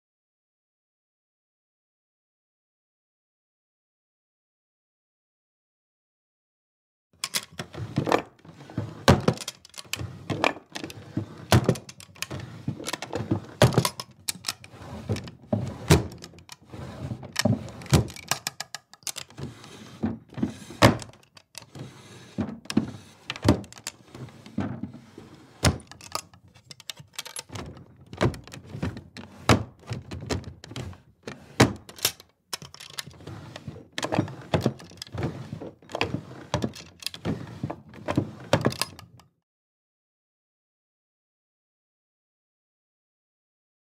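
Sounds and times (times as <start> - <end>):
drawers knocking shut: 7.2 - 38.9
wooden drawers scraping: 7.2 - 39.2.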